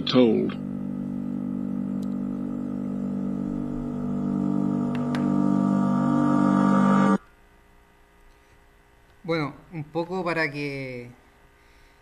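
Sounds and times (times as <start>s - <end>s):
sustained musical chord drone: 0.0s - 7.2s.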